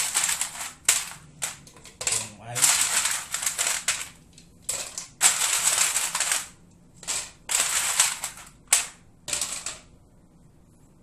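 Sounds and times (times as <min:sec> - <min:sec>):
ice cubes clattering into plastic cup: 0:02.1 - 0:04.1, 0:04.7 - 0:08.5.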